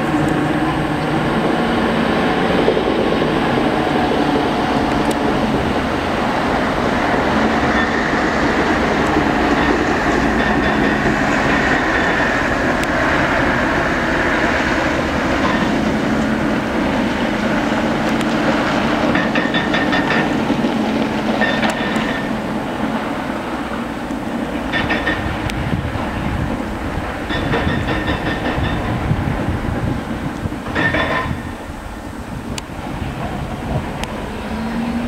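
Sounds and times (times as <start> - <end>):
hydraulic breaker hammering rock: 19.1 - 20.4, 27.3 - 28.9.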